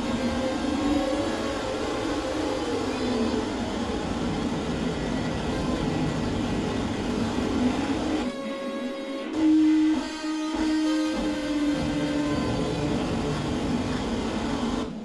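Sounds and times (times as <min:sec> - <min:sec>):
dense noisy drone with low rumble: 0:00.0 - 0:09.2.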